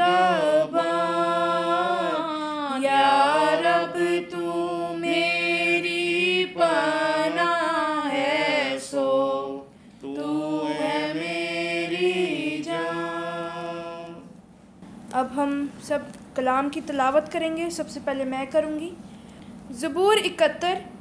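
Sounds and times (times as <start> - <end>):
woman singing a hymn: 0.0 - 9.1.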